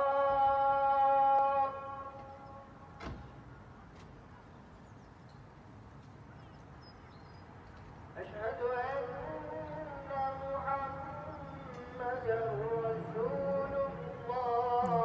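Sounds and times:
man singing call to prayer: 0.0 - 2.9, 8.2 - 15.0.

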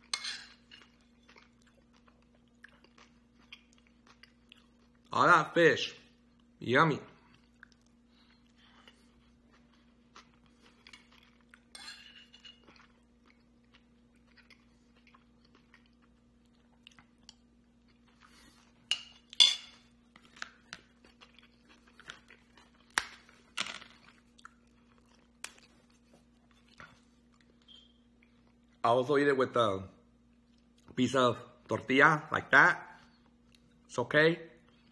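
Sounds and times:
man chewing and crunching: 0.0 - 5.1, 7.2 - 11.7, 12.3 - 28.8
faint steady hum: 0.0 - 34.9.

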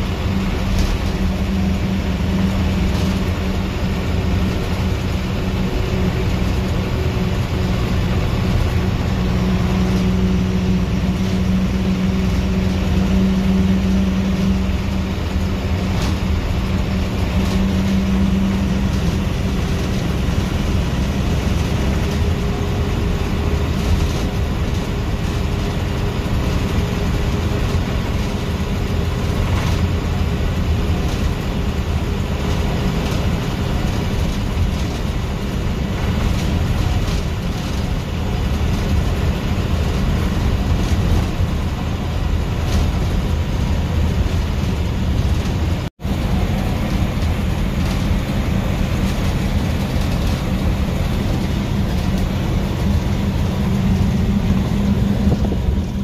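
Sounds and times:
diesel engine drone: 0.0 - 56.0
road noise: 0.0 - 56.0.

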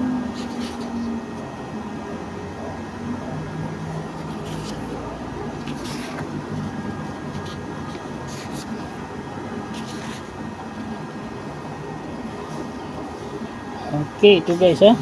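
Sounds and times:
paper pages turning: 0.3 - 1.1, 4.1 - 11.0.

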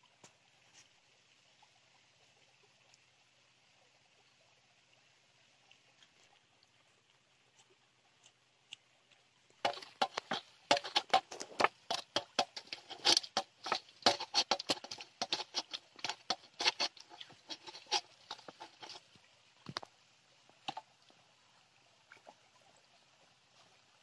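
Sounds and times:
paste squished by hand in a bowl: 9.6 - 19.0.

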